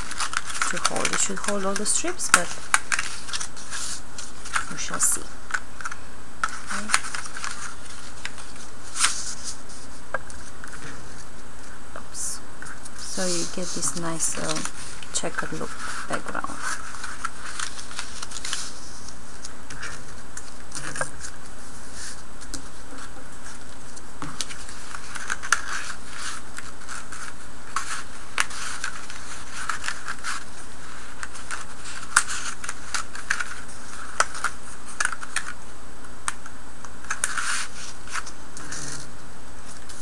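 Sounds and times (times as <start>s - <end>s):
steady background hiss: 0.0s - 40.0s
cardstock sliding and rustling: 12.8s - 19.1s.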